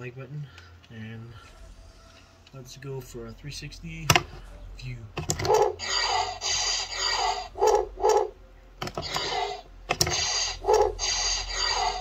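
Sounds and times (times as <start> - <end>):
toy electronic sound effects: 5.3 - 12.0.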